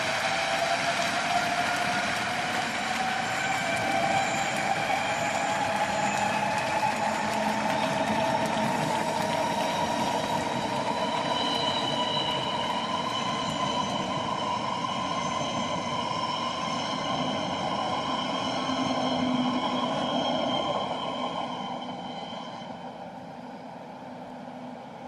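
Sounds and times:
electric train passing: 0:00.0 - 0:25.0.

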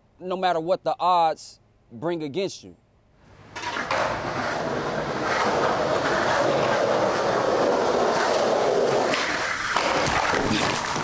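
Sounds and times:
skateboard wheels rolling on concrete: 0:03.3 - 0:11.0
skateboard clicks: 0:03.6 - 0:11.0.

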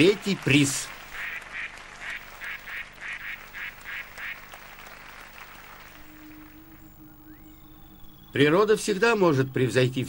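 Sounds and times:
duck quacking: 0:01.2 - 0:04.5.

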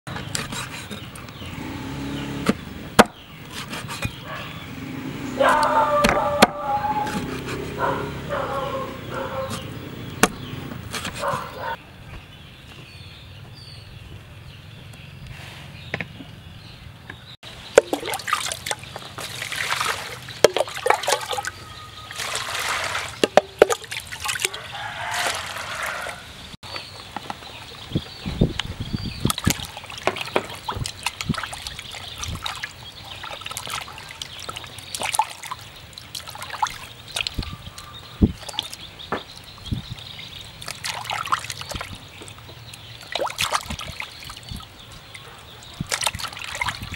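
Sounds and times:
cleaver chopping on wooden board: 0:02.4 - 0:04.2, 0:09.5 - 0:11.5
dull thumps: 0:09.4 - 0:11.6
water sloshing in basin: 0:17.5 - 0:26.2, 0:29.2 - 0:46.9
water pouring into jar: 0:22.1 - 0:26.2.

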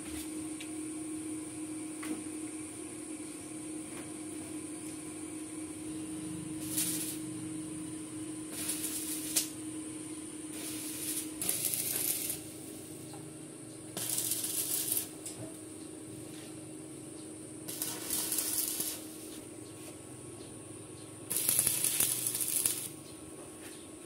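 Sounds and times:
steady low hum: 0:00.0 - 0:24.0
arc welding bursts: 0:06.5 - 0:07.4, 0:08.5 - 0:09.6, 0:10.5 - 0:12.9, 0:13.9 - 0:15.3, 0:17.6 - 0:19.4, 0:21.3 - 0:23.0.

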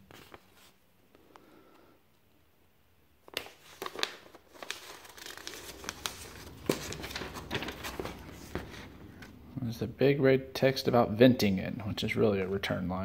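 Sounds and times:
paper rustling and crinkling: 0:00.0 - 0:00.8, 0:03.2 - 0:09.4.

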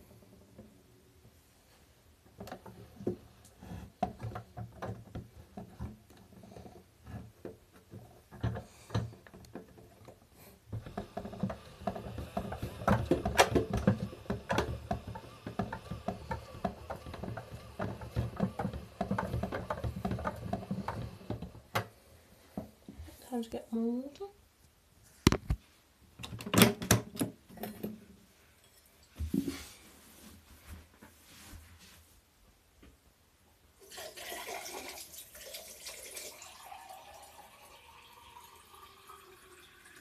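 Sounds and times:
water splashing inside drum: 0:10.7 - 0:21.7
washing machine drum turning: 0:10.7 - 0:21.9.

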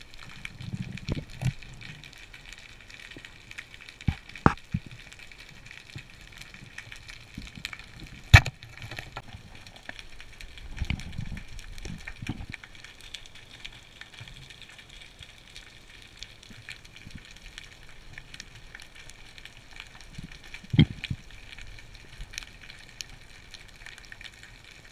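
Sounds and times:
underwater crackle of clicks: 0:00.0 - 0:24.9.

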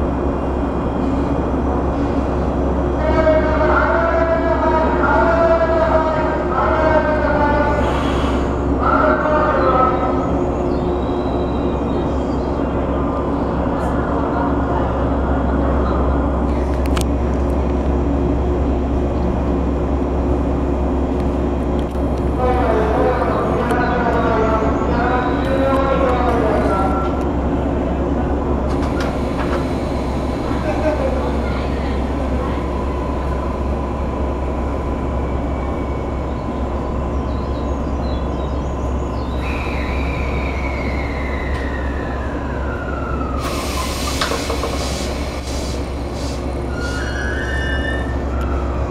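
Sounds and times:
electric train equipment humming: 0:00.0 - 0:48.9
loud air hiss: 0:43.4 - 0:47.1.

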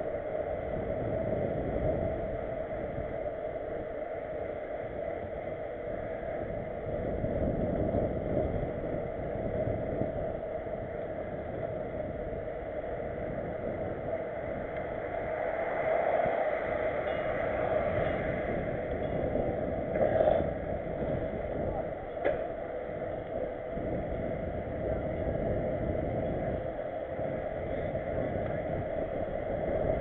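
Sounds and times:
wind rushing over microphone: 0:00.0 - 0:30.0
bike rattling: 0:03.5 - 0:30.0
tyres rolling on asphalt: 0:07.9 - 0:30.0.

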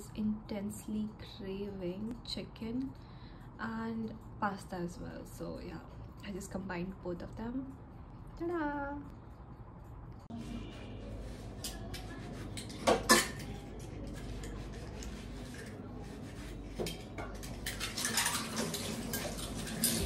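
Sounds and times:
cutlery clinking and scraping on dish: 0:11.5 - 0:20.0.

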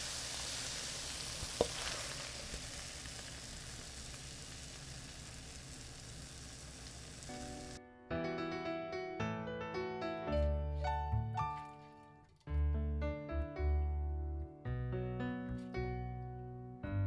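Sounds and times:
food sizzling in a frying pan: 0:00.0 - 0:07.8
piano music: 0:07.3 - 0:17.0.

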